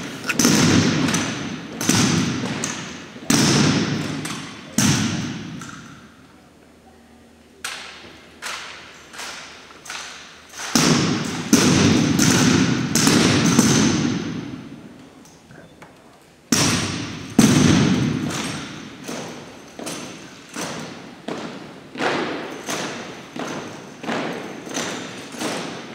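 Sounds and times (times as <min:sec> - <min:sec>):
rifles and boots striking wooden floor: 0:16.5 - 0:25.9.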